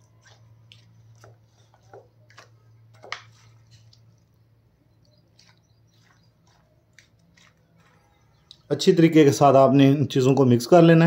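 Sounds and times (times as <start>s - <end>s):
spoon stirring wet food: 0.0s - 8.7s.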